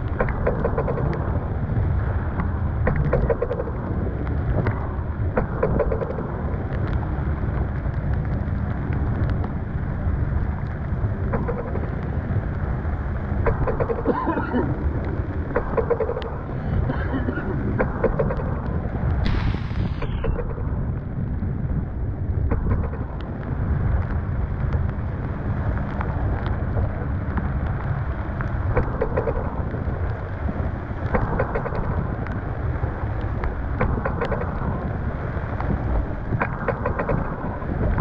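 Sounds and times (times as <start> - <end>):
storm wind buffeting microphone: 0.0 - 38.0
spray and rain striking: 13.2 - 20.4.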